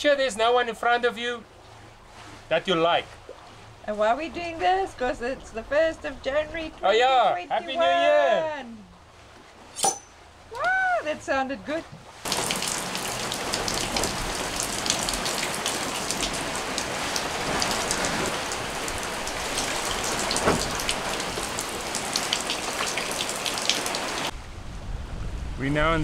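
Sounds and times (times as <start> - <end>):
rain tapping on a boat deck: 12.2 - 24.3.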